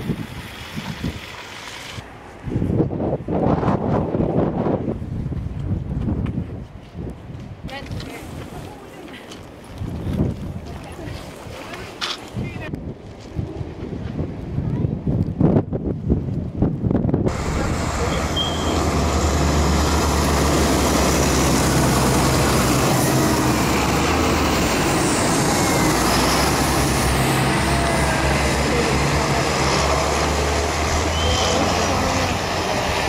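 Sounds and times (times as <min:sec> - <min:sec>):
road noise rushing: 0:17.1 - 0:33.0
tractor engine hum: 0:17.3 - 0:33.0.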